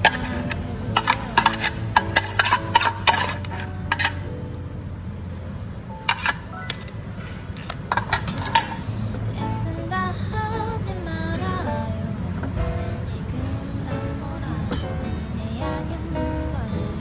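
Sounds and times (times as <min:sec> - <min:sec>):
metal spoon scraping metal bowl: 0:00.0 - 0:04.3, 0:06.0 - 0:07.0, 0:07.6 - 0:08.9.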